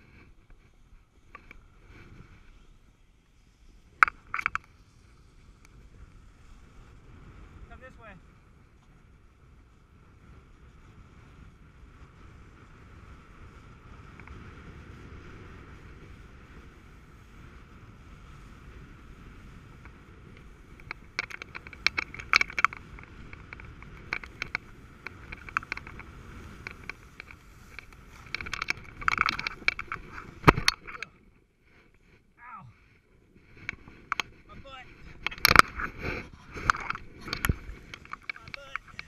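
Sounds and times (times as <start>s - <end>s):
snowboard edges scraping: 22.8s - 30.9s, 31.6s - 39.0s.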